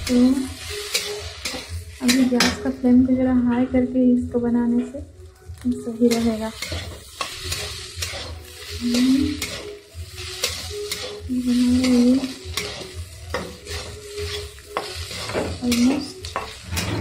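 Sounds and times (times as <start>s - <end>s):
okra sizzling in oil: 0.0s - 2.4s, 5.4s - 17.0s
spatula scraping pan: 0.0s - 2.5s, 6.1s - 17.0s.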